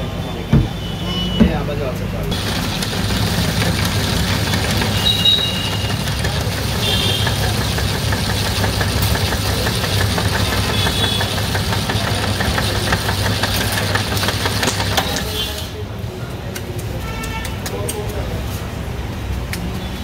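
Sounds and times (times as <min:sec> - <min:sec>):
ice-shaving machine humming: 0:02.3 - 0:15.4.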